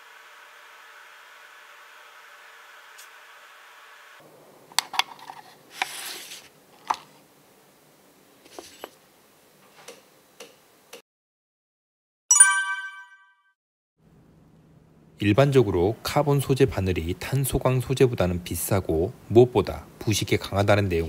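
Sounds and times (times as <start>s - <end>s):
bright ringing chime: 12.3s - 13.4s.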